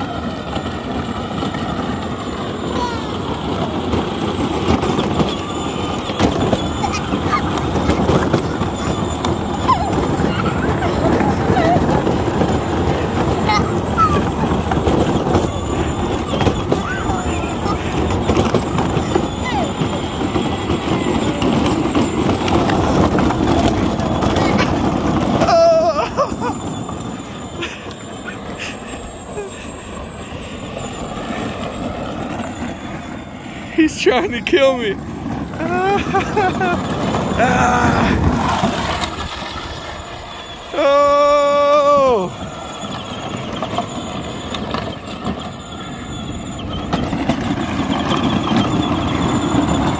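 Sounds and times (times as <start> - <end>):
electric motors whining: 0.0 - 49.9
ride-on toy rolling over asphalt: 0.0 - 49.9
person speaking: 33.7 - 35.0.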